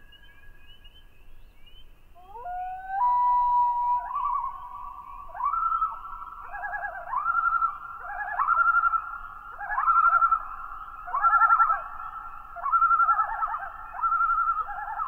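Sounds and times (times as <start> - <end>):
loons calling: 2.2 - 15.0.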